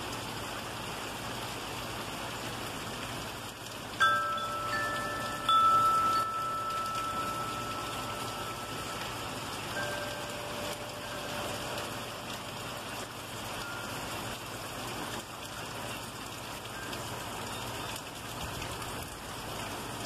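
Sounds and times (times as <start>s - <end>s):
heavy rain pouring: 0.0s - 20.0s
wind chimes ringing: 4.0s - 14.6s.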